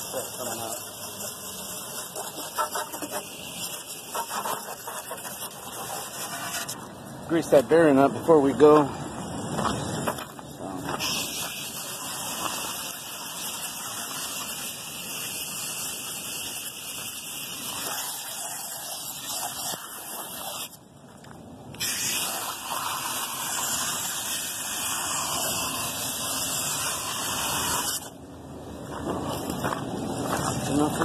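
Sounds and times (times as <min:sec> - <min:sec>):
water spray hissing on metal fins: 0:00.0 - 0:06.8, 0:11.0 - 0:20.8, 0:21.8 - 0:28.1.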